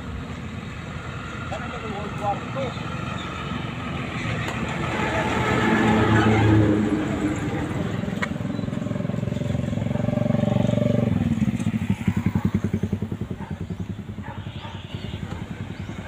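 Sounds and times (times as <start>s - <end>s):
small engine running: 8.7s - 16.0s.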